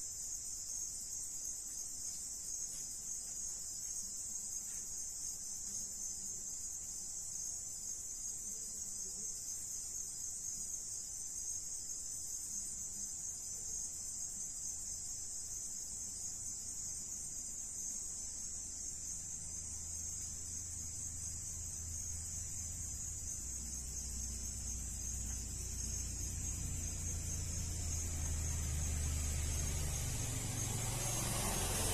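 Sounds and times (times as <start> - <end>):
crickets chirring: 0.0 - 31.9
vehicle engine rumble: 22.2 - 31.9.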